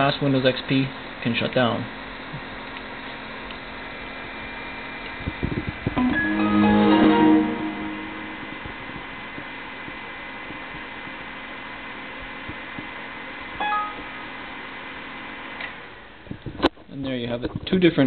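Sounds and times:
computer fan and drive hiss: 0.0s - 18.0s
brief high tone: 6.0s - 8.7s
shutdown chime: 6.0s - 8.8s.

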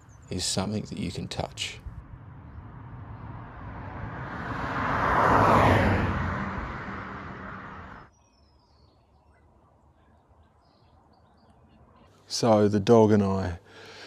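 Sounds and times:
car passing by: 1.8s - 8.1s.

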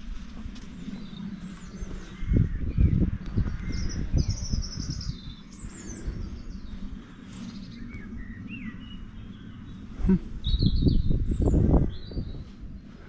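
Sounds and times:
low rumble: 0.0s - 13.0s
small birds chirping: 0.0s - 13.0s.

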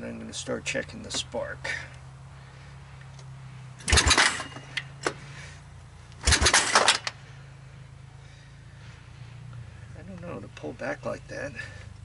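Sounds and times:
engine pull-start chuffing: 3.8s - 5.2s, 6.2s - 7.2s.

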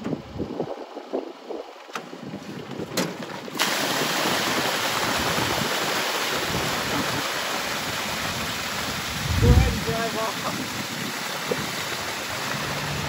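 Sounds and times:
water gushing onto asphalt: 3.2s - 13.0s.

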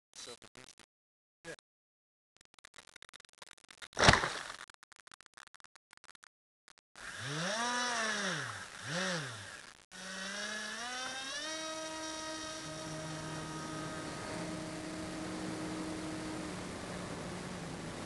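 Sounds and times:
electric motor and propeller whine: 7.0s - 18.0s.

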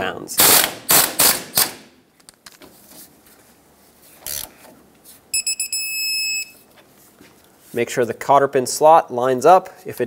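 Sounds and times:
torque wrench beeping: 5.3s - 6.6s.

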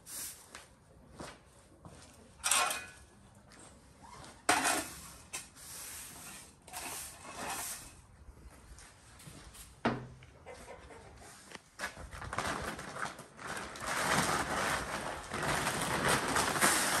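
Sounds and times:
broom sweeping on concrete: 0.0s - 0.8s, 4.2s - 9.8s, 16.6s - 17.0s
metal dustpan scraping and clinking: 2.4s - 3.0s, 4.5s - 5.5s, 6.1s - 8.0s.

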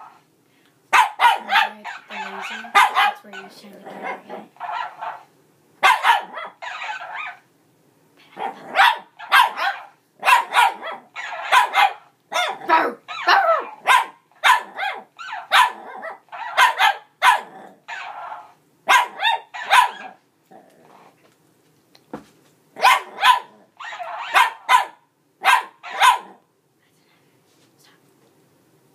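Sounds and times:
puppy barking: 0.9s - 7.4s, 8.4s - 20.2s, 22.8s - 26.4s.

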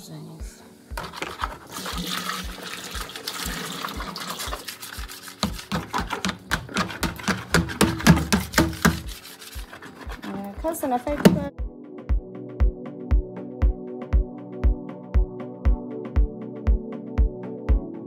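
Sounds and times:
background music with steady beat: 0.0s - 18.0s
thick liquid pouring into drum: 1.0s - 6.3s.

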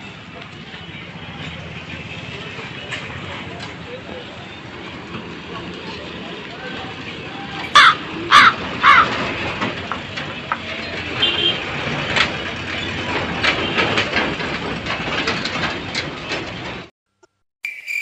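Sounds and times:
road traffic: 0.0s - 16.9s
crow cawing: 7.7s - 9.2s.

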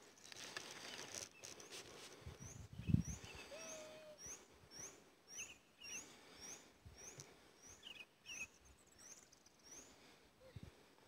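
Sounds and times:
bird chirping and twittering: 2.4s - 9.9s.

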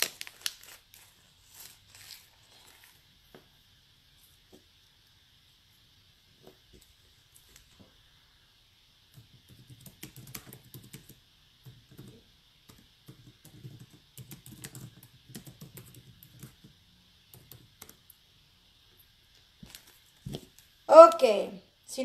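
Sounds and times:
typing taps and clicks: 9.2s - 18.2s.

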